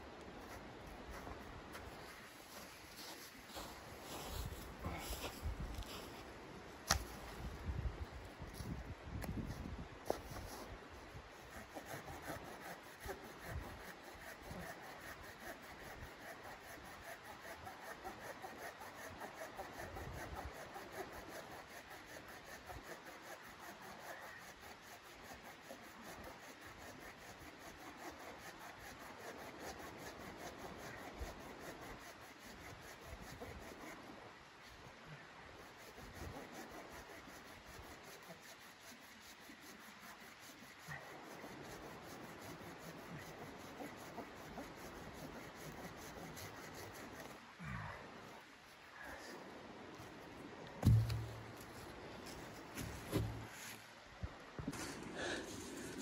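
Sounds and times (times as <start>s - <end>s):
hand saw cutting wood: 11.4s - 34.1s, 35.6s - 47.4s, 50.8s - 53.8s.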